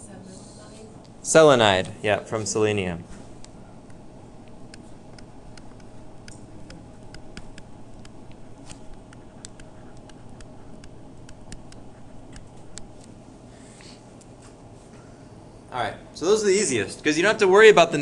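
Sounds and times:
low steady hum: 0.0s - 18.0s
stylus tapping on tablet screen: 4.6s - 13.0s.

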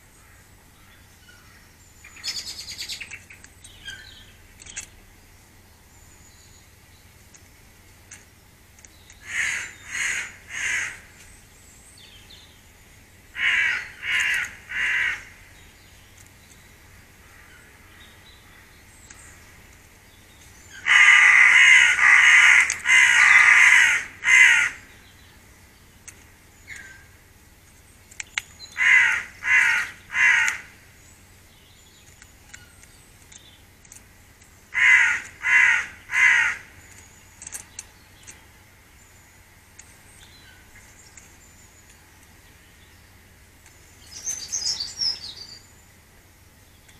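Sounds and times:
crow cawing harshly: 9.2s - 11.1s, 13.4s - 15.4s, 20.8s - 24.8s, 28.8s - 30.8s, 34.7s - 36.7s.

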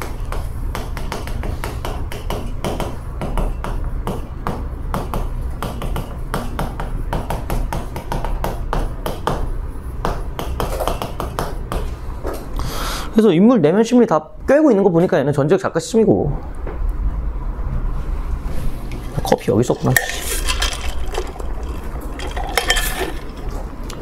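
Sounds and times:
chalk tapping and scratching: 0.0s - 12.0s
steady low hum: 0.0s - 24.0s.

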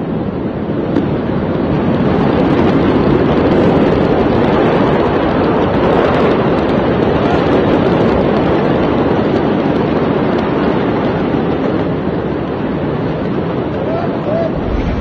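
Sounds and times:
loud rushing noise: 14.5s - 15.0s.

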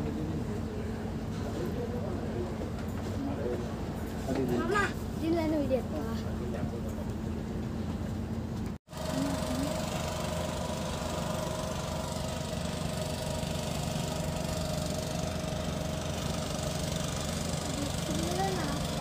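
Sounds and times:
boat engine humming: 8.9s - 19.0s.

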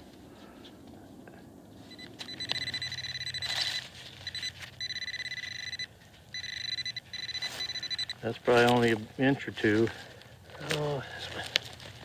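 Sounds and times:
rustle: 0.0s - 12.0s
pinpointer pulsing high tone: 1.9s - 8.2s.

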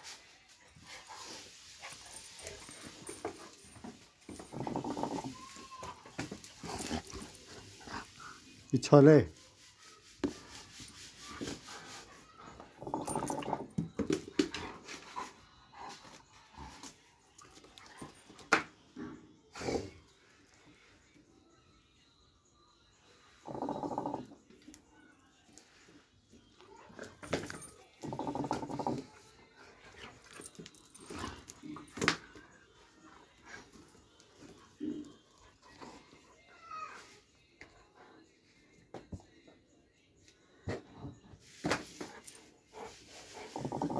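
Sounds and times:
dog grumbling whine: 4.3s - 5.9s, 12.6s - 13.8s, 23.4s - 24.4s, 28.0s - 29.2s, 43.4s - 43.9s.

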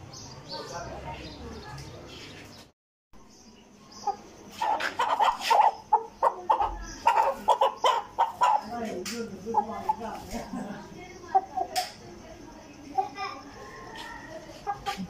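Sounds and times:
rooster clucking: 4.0s - 10.5s, 13.6s - 15.0s.

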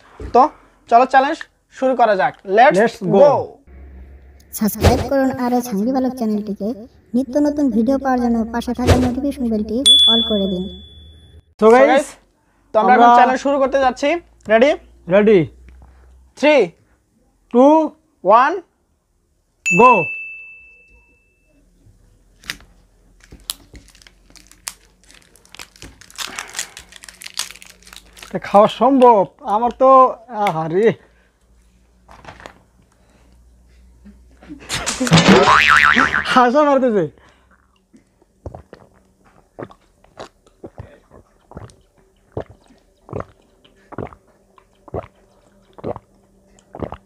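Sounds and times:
crackling of caps and seals: 22.4s - 28.5s
plastic bottle caps twisting open: 23.2s - 28.4s
people gulping: 37.5s - 47.0s.

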